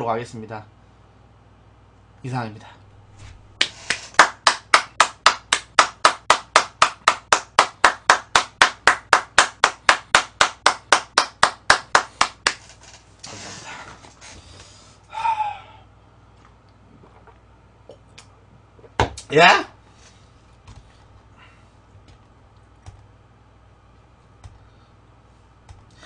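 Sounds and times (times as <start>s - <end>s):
person clapping hands: 3.6s - 12.7s.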